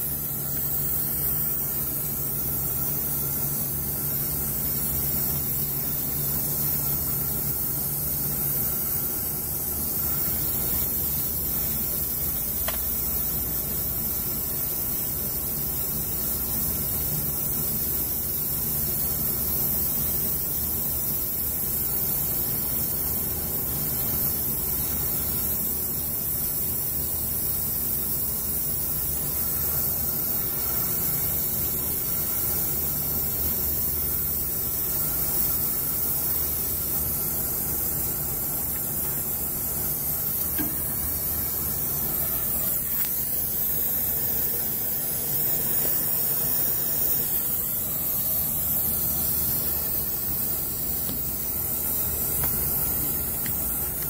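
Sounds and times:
hvac equipment humming: 0:00.0 - 0:54.0
steady hiss: 0:00.0 - 0:54.0.

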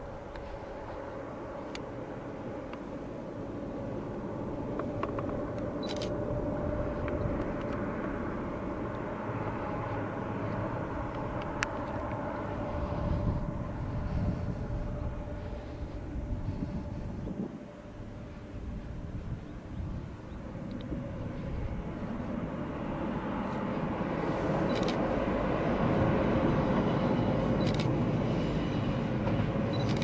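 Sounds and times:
distant diesel train rumbling: 0:00.0 - 0:30.0.

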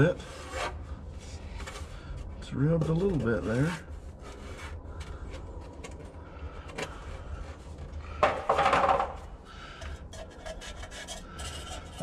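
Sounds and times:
metal scrape and clatter: 0:09.8 - 0:12.0.

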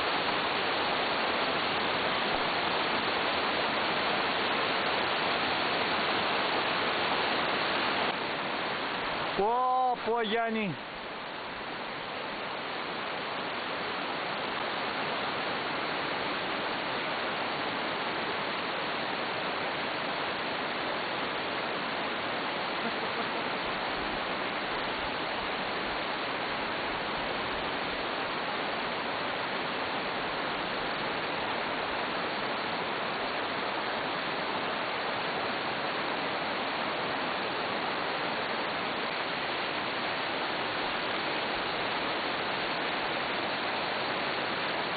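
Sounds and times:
water rushing over rocks: 0:00.0 - 0:44.9.

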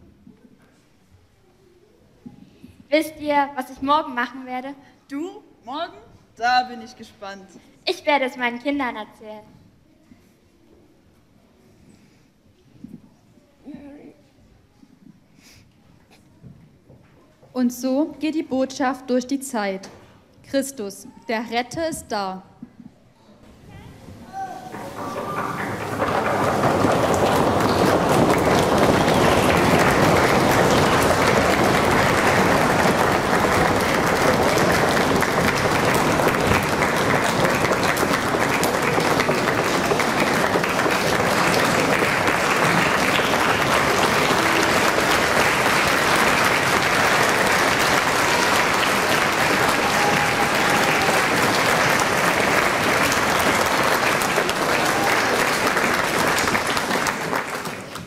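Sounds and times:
audience applauding: 0:24.3 - 0:58.0.

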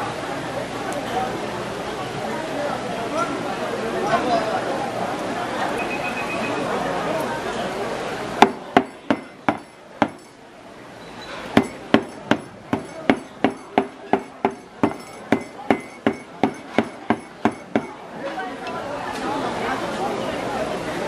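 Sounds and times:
knife chopping on a cutting board: 0:08.4 - 0:10.3, 0:11.6 - 0:18.0.

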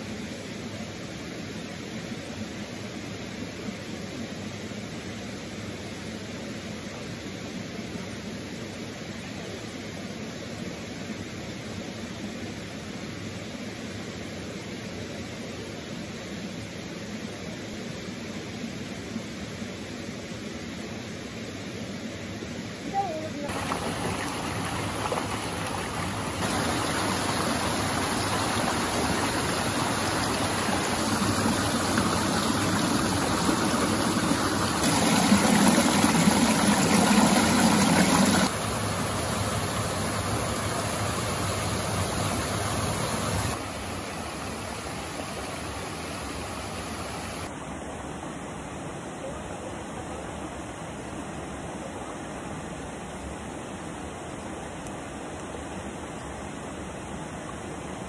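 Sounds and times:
river rushing over boulders: 0:22.6 - 0:58.0.

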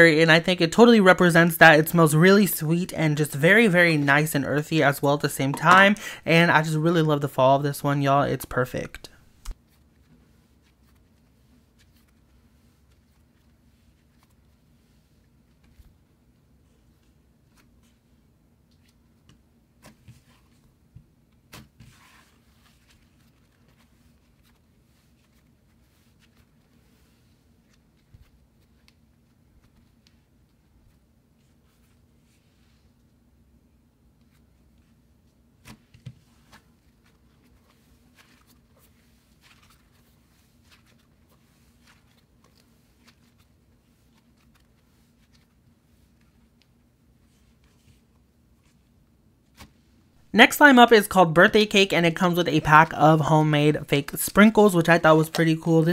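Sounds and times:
low steady hum: 0:00.0 - 0:21.5.

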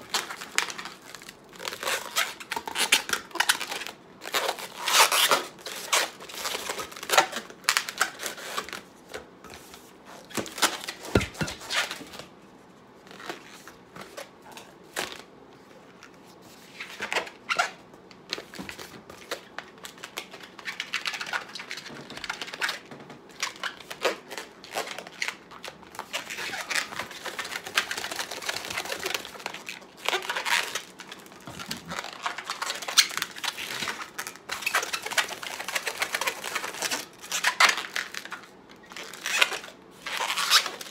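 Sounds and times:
balloon squeaking and rubbing: 0:26.1 - 0:29.4, 0:39.2 - 0:40.9.

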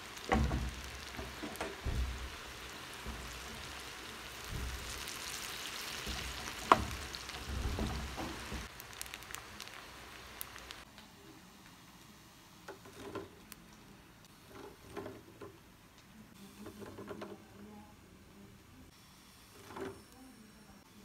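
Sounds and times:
pasta sizzling in oil: 0:00.0 - 0:10.9.

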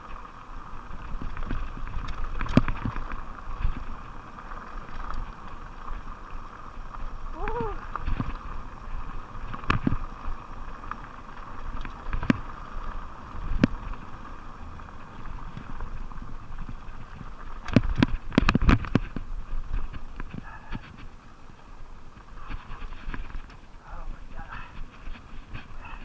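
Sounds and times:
bike clacking and rattling over bumps: 0:00.0 - 0:26.0
bike tyres rushing on dirt: 0:00.0 - 0:26.0.

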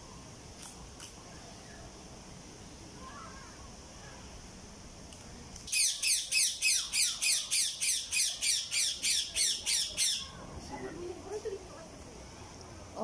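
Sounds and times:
bird squawking: 0:05.7 - 0:10.4.

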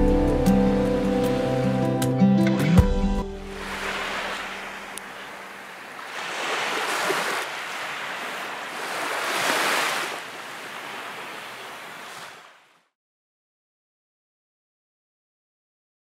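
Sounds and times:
small waves lapping on beach: 0:03.4 - 0:12.9.

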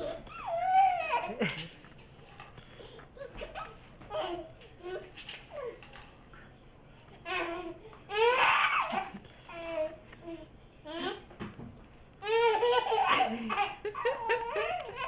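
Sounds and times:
baby giggling: 0:00.0 - 0:01.7, 0:12.2 - 0:15.0.

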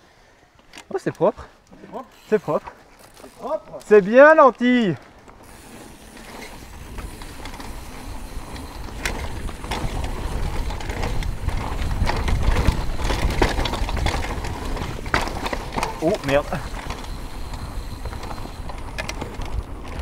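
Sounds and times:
bike tyres on dirt: 0:00.1 - 0:20.0
bike clunking and rattling: 0:01.7 - 0:20.0
wind rumble: 0:05.4 - 0:20.0.

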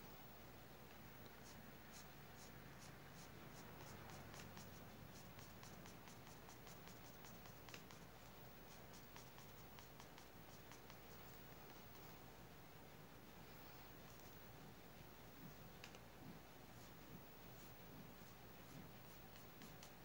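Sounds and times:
pencil scratching on paper: 0:01.4 - 0:11.1.

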